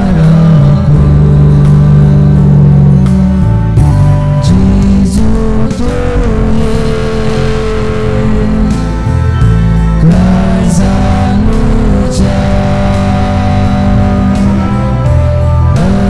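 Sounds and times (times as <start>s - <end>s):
electric guitar: 0.0s - 16.0s
keyboard: 0.0s - 16.0s
choir singing: 4.5s - 16.0s.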